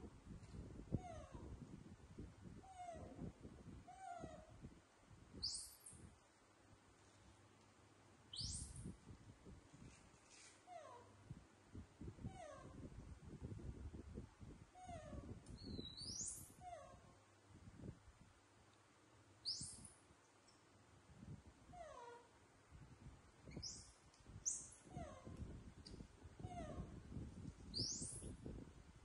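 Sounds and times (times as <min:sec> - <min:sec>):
baby monkeys squeaking: 0:27.8 - 0:28.3.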